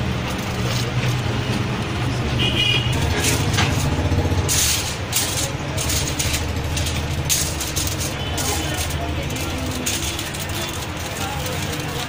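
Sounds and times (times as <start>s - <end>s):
aluminium foil crinkling: 2.9s - 12.0s.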